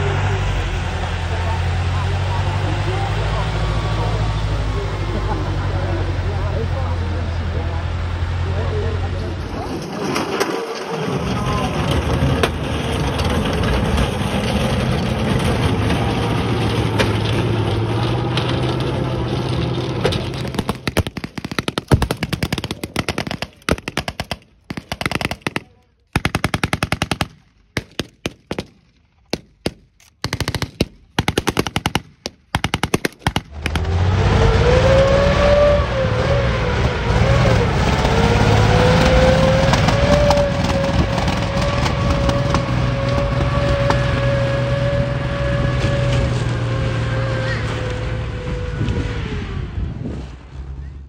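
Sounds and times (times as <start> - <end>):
tank engine with wavering whine: 0.0 - 25.6, 32.7 - 51.0
tracked vehicle engine and tracks: 0.0 - 51.0
automatic gunfire bursts: 20.7 - 28.7, 29.3 - 33.5.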